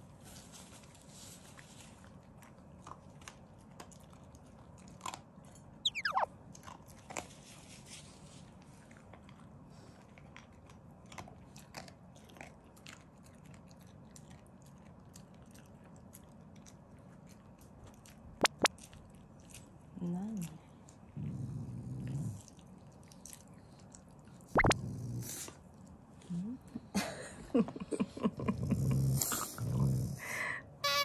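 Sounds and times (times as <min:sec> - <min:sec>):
dog chewing and crunching: 0:00.0 - 0:24.7
falling squeak: 0:05.8 - 0:06.3
sharp clicks: 0:18.4 - 0:18.7.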